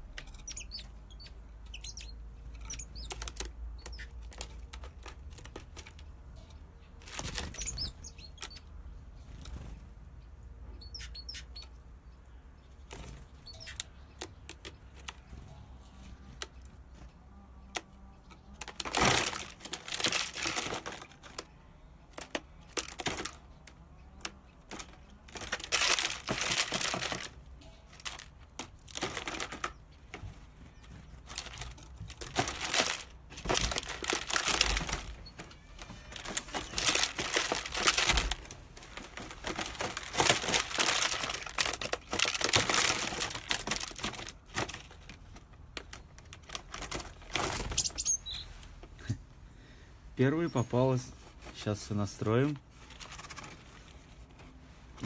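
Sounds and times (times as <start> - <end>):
bird flapping inside plastic bottle: 7.0 - 8.6, 18.6 - 21.5, 24.6 - 30.3, 31.1 - 48.1.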